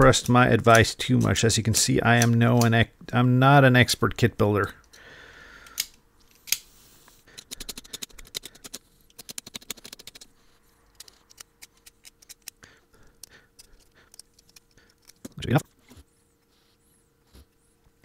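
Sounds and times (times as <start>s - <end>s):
sharp clicks: 7.3s - 10.3s
razor blade scraping wire: 10.9s - 12.6s.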